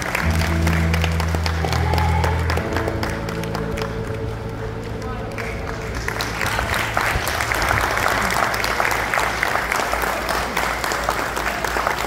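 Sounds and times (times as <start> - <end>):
music: 0.0 - 9.3
crowd applauding: 0.0 - 12.0.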